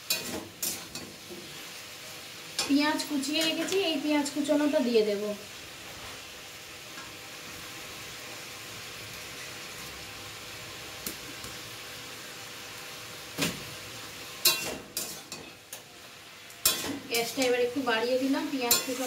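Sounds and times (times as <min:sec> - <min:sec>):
food sizzling in oil: 0:00.0 - 0:19.0
spatula scraping pan: 0:18.2 - 0:19.0.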